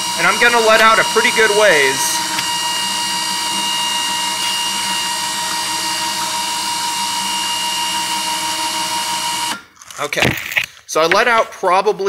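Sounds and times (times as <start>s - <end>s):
electric winch motor whine: 0.0s - 9.6s.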